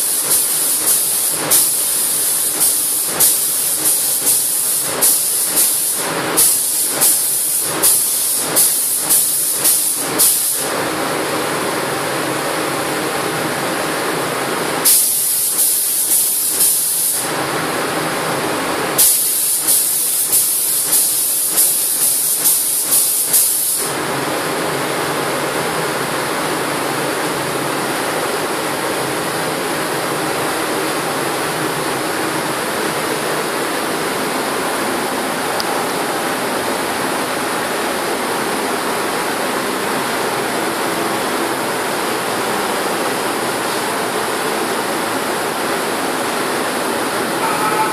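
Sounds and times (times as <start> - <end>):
spray gun hissing: 0.0 - 10.7, 14.8 - 17.3, 19.0 - 24.0.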